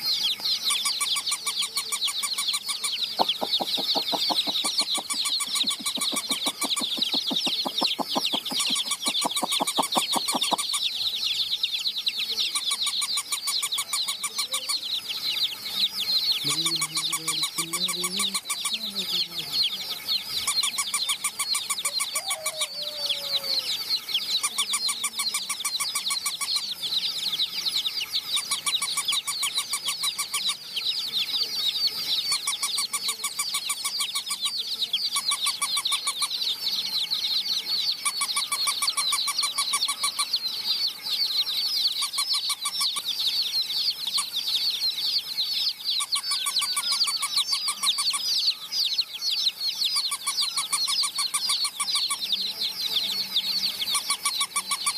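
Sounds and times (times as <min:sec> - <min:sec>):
baby chicks peeping: 0:00.0 - 0:54.9
rapid even clicking: 0:03.2 - 0:10.6.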